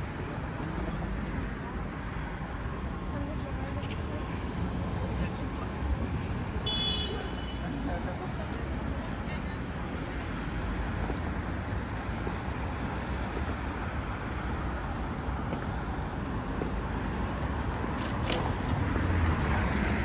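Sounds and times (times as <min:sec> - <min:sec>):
cars passing on busy street: 0:00.0 - 0:20.0
vehicle engine hum: 0:07.8 - 0:20.0.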